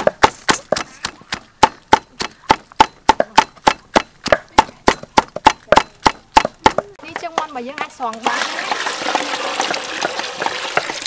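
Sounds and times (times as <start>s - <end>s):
cleaver chopping on wooden block: 0.0s - 8.0s.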